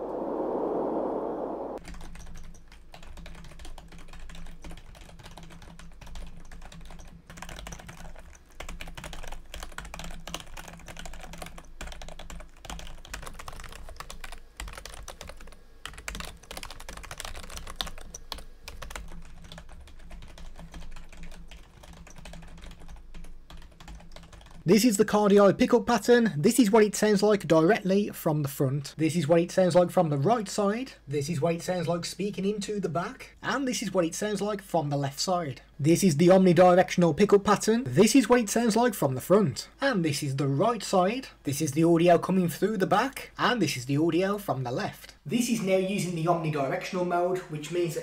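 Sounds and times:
typing on computer keyboard: 1.8s - 24.6s.

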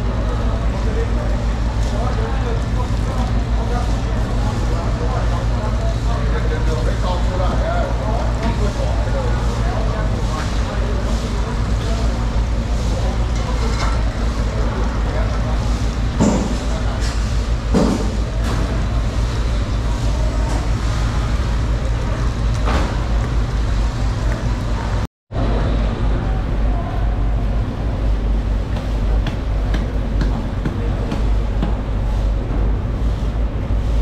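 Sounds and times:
background rumble and din: 0.0s - 34.0s.

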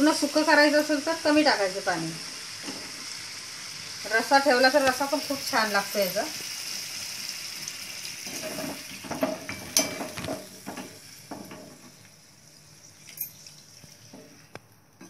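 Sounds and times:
chicken sizzling in a hot pan: 0.0s - 13.0s
metal spatula scraping a pan: 8.3s - 10.5s.

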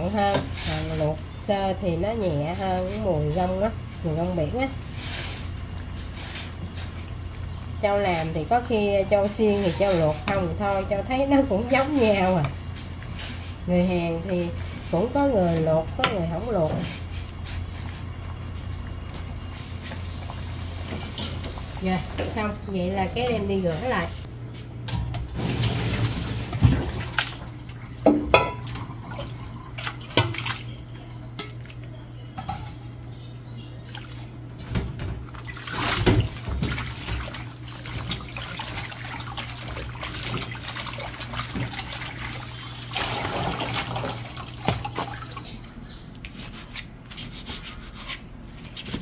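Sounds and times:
tap water splashing in sink: 25.6s - 30.8s, 33.9s - 45.4s.

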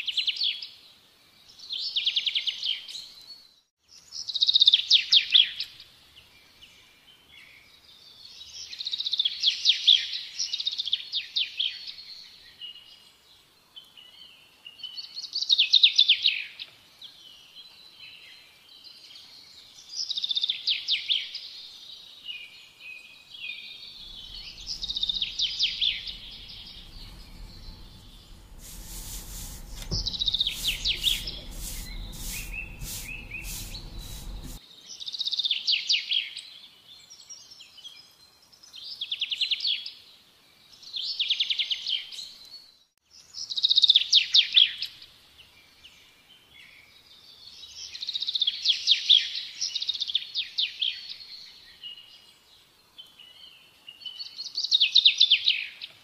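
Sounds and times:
low hum: 24.0s - 34.6s.

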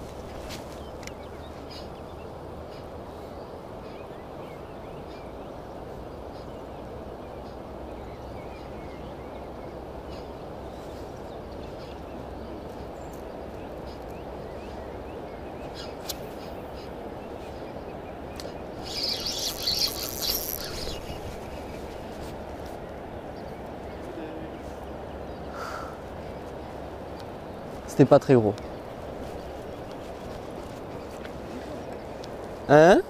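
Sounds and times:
river flowing: 5.3s - 33.0s
faint bird chirps: 6.0s - 22.0s
jacket rubbing against microphone: 18.8s - 22.7s.

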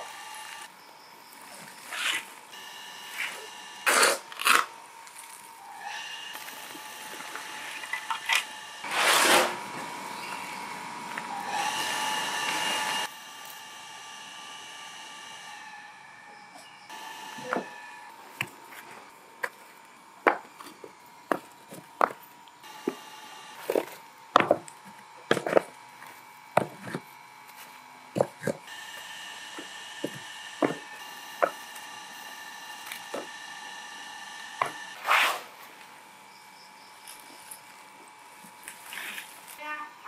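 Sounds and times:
metal shovel scraping ash: 3.2s - 4.7s, 8.8s - 9.7s, 35.0s - 35.7s.

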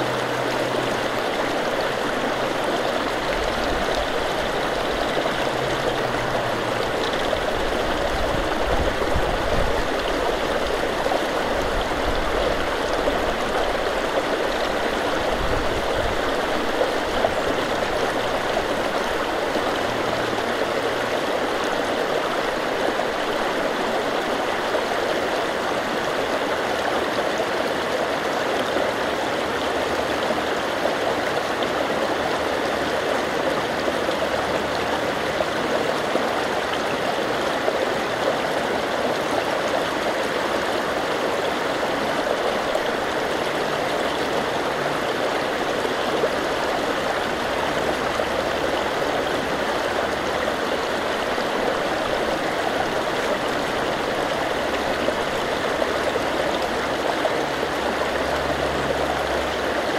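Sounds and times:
river water over rocks: 0.0s - 59.9s.

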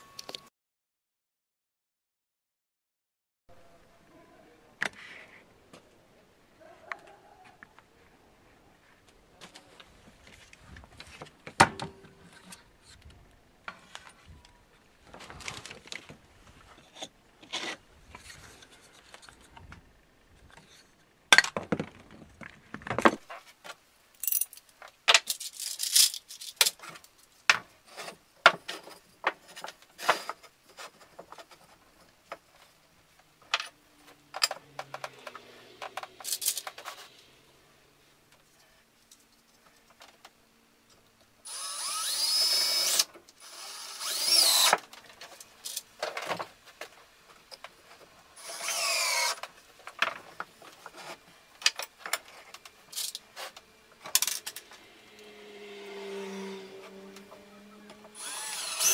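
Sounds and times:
metal brackets and screws clinking: 24.2s - 27.0s, 36.2s - 37.1s.

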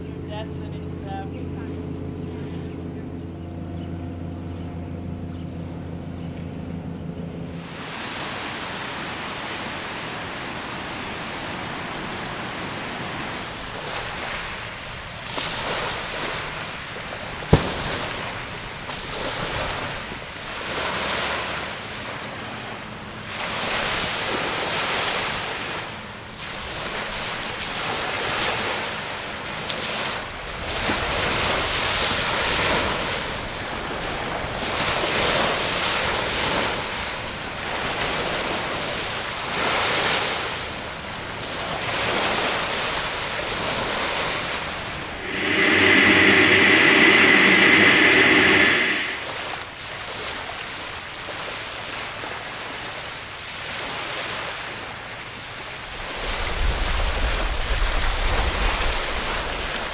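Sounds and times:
wind buffeting microphone: 45.1s - 49.5s.

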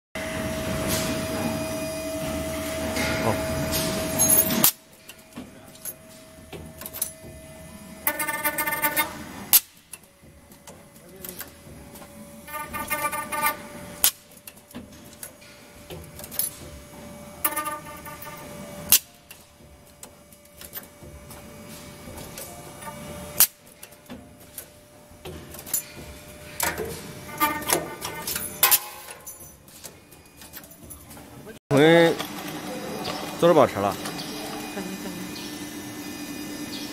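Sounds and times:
spindle motor humming: 0.2s - 36.9s
milling cutter cutting metal: 2.8s - 9.8s, 10.7s - 14.4s, 25.2s - 29.1s
pneumatic cylinder clacks: 3.0s - 31.3s.

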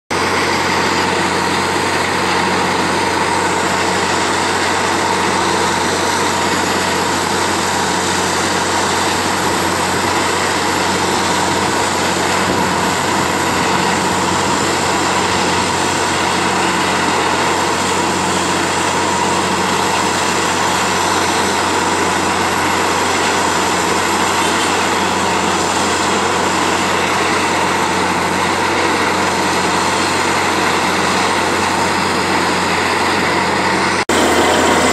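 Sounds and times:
drilling rig engine drone: 0.1s - 34.9s.

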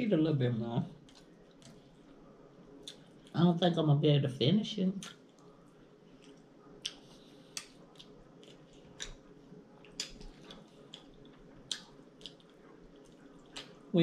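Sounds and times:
person chewing: 1.0s - 2.2s, 2.8s - 3.4s, 5.0s - 13.9s.

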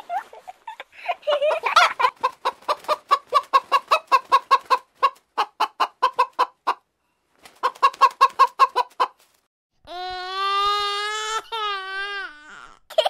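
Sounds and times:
hen clucking: 1.5s - 6.9s, 7.6s - 9.2s.

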